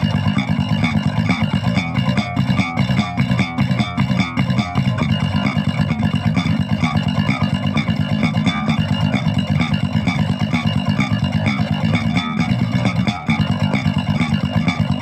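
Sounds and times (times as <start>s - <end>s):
electric bass playing metal riff: 0.0s - 15.0s.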